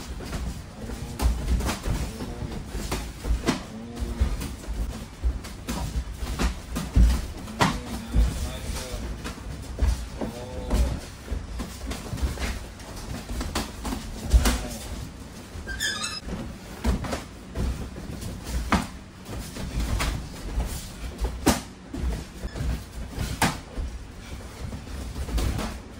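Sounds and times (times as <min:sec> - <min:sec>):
footwork thuds on canvas: 0:00.0 - 0:14.9
punches and kicks slapping: 0:00.0 - 0:14.9, 0:16.7 - 0:24.1
brief squeak: 0:15.7 - 0:16.2.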